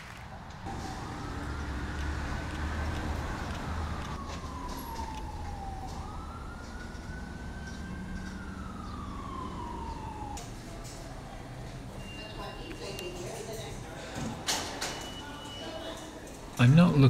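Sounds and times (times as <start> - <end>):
low rumble of traffic: 0.0 - 17.0
emergency vehicle siren wailing: 0.7 - 13.0.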